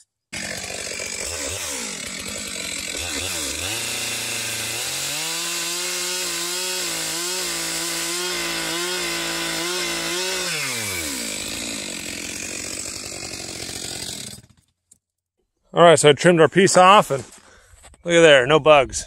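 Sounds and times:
chainsaw cutting wood: 0.3s - 14.8s.

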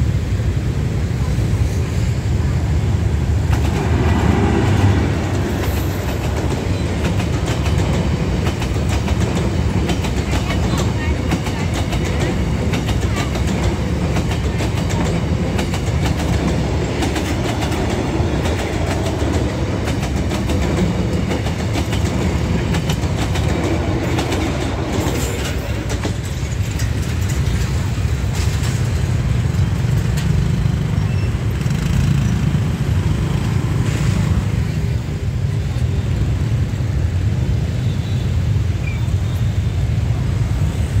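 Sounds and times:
street traffic rumble: 0.0s - 41.0s
train carriages rolling on rails: 0.0s - 41.0s.

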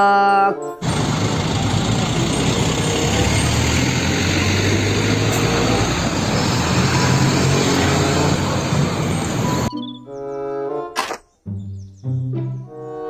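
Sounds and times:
diesel truck driving past: 0.8s - 9.7s.

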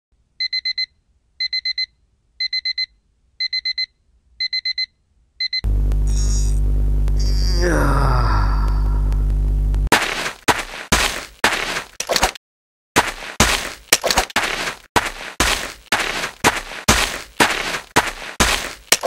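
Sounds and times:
digital alarm clock beeping: 0.4s - 5.6s.

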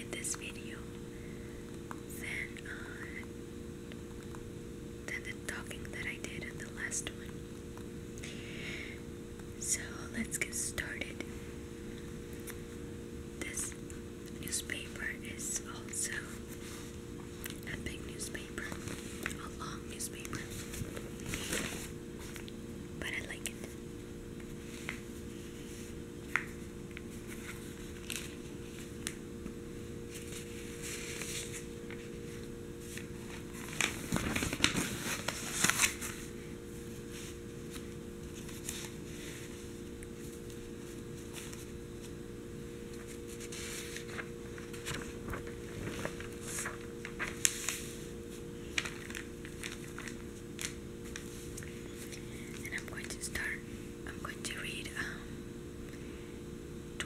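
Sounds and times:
paper crinkling: 20.2s - 22.5s, 24.4s - 29.2s, 30.1s - 42.2s, 42.9s - 53.1s
newspaper rustling: 20.3s - 22.5s, 24.5s - 29.2s, 30.1s - 42.2s, 42.8s - 52.9s
light taps on paper: 26.3s - 26.6s.

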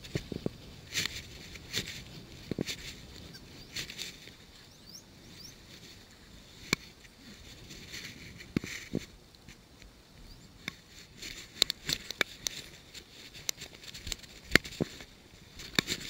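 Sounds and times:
faint bird chirps: 4.5s - 5.6s, 10.2s - 10.6s.

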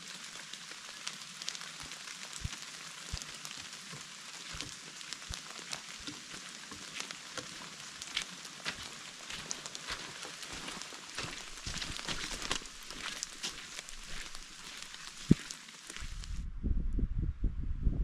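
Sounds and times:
rain falling with hiss: 0.0s - 16.4s
footsteps on wet track: 1.8s - 3.5s, 4.4s - 16.4s.

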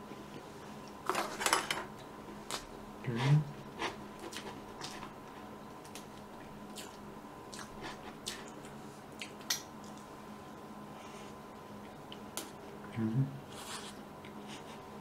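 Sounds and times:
wet biting and chewing: 6.7s - 10.1s.

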